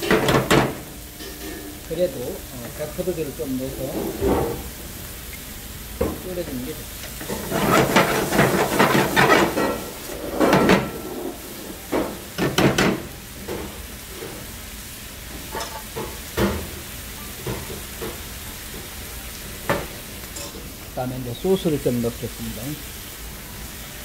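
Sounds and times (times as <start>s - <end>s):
food sizzling in a frying pan: 0.0s - 24.0s
metal spoon scraping a pan: 7.2s - 11.4s.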